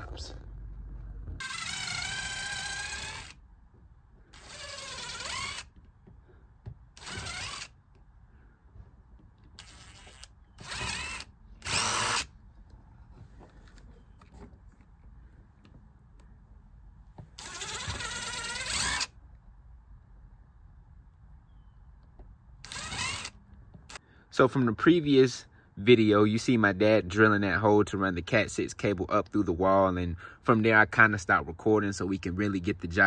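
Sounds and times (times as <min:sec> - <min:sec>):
cordless drill boring into wood: 0:01.4 - 0:03.4, 0:04.3 - 0:05.8, 0:07.0 - 0:07.8, 0:09.6 - 0:12.3, 0:17.4 - 0:19.1, 0:22.6 - 0:24.0.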